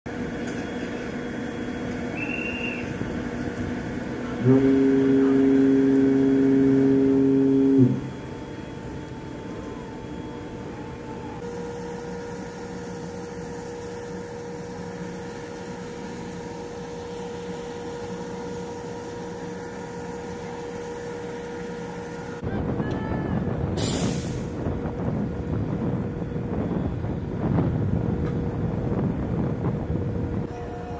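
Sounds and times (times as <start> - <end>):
ship's horn blast: 4.1 - 24.5, 30.4 - 30.9
wind buffeting microphone: 22.4 - 30.9.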